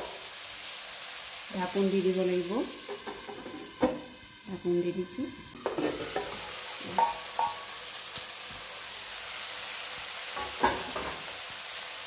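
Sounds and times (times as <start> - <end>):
chicken sizzling in a wok: 0.0 - 12.0
metal lid clanking: 5.6 - 7.6.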